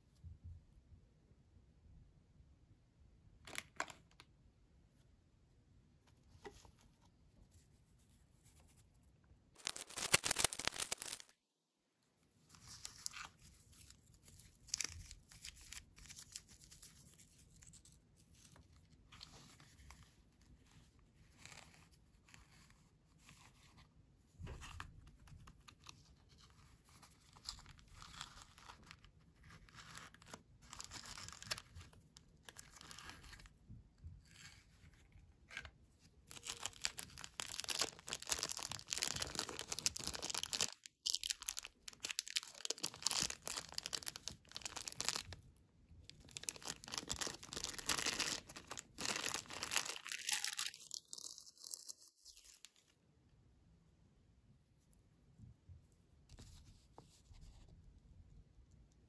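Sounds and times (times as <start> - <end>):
cardboard and plastic crinkling: 9.6 - 11.3, 27.1 - 33.3, 36.3 - 45.4, 46.1 - 51.0
packaging tearing: 9.6 - 11.3, 30.1 - 31.7, 36.3 - 45.3, 46.2 - 52.6.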